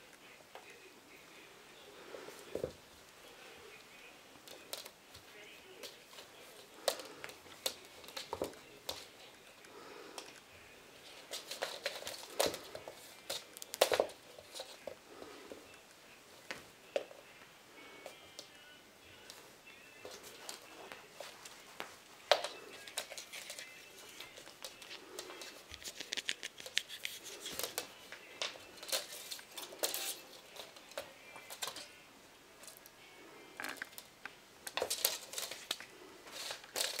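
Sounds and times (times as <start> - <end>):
kittens' claws scratching and rustling: 4.4 - 15.5, 20.0 - 31.9, 34.7 - 37.0.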